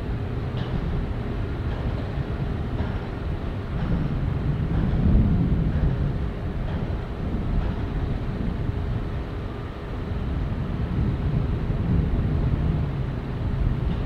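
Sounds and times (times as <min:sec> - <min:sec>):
jet engines rumbling: 0:00.0 - 0:14.0
wind on microphone: 0:00.0 - 0:14.0.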